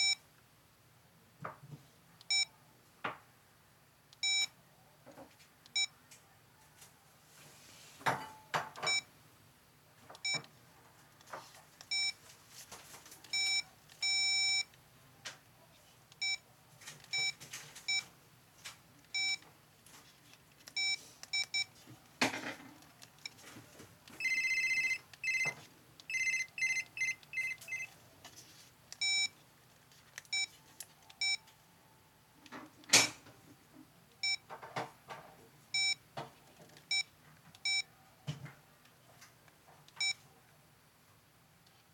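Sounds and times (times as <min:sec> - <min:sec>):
phone key beeps: 0:04.2 - 0:04.5, 0:05.7 - 0:05.9, 0:08.8 - 0:09.1, 0:11.9 - 0:12.2, 0:13.3 - 0:14.7, 0:16.2 - 0:16.4, 0:17.1 - 0:18.0, 0:19.1 - 0:19.4, 0:20.7 - 0:21.7, 0:24.2 - 0:27.9, 0:29.0 - 0:29.3, 0:30.3 - 0:31.5, 0:34.2 - 0:34.4, 0:35.8 - 0:36.0, 0:36.9 - 0:37.9, 0:40.0 - 0:40.2
run of phone tones: 0:24.2 - 0:27.9.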